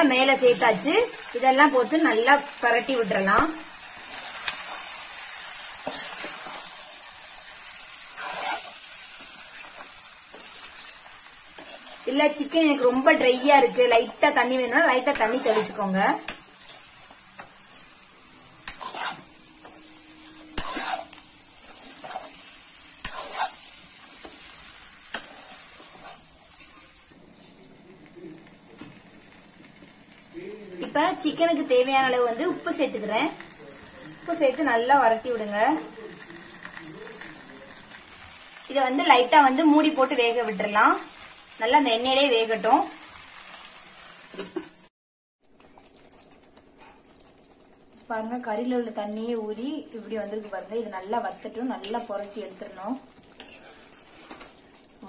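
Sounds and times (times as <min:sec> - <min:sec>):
food sizzling in a pan: 0:00.0 - 0:55.0
spoon scraping a pan: 0:04.0 - 0:07.0, 0:07.7 - 0:27.1, 0:51.4 - 0:54.6.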